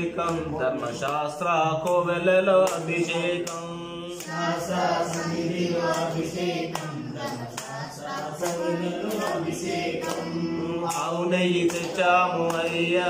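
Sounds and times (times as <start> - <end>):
several voices singing devotional song: 0.0 - 13.0.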